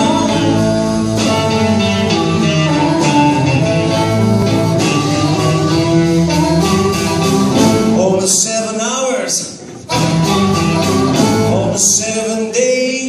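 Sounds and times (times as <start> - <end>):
electric guitars: 0.0 - 8.2, 9.5 - 11.8
harmonica: 0.0 - 8.2, 9.9 - 12.0
bass guitar: 0.0 - 8.5, 9.6 - 12.1
drums: 0.0 - 13.0.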